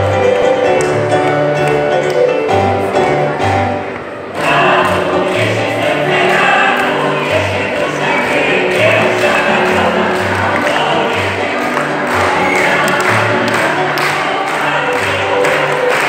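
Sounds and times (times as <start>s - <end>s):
group of voices singing: 4.3s - 16.0s.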